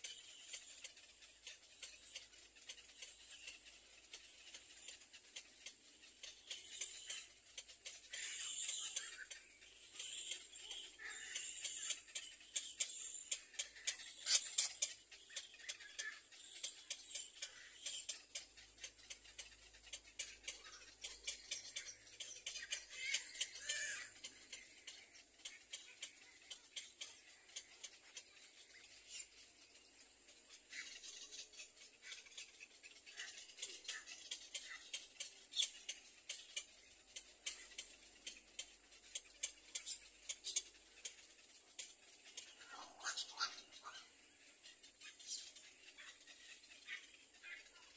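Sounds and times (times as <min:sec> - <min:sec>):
nestlings clicking and chirping: 0:00.0 - 0:47.9.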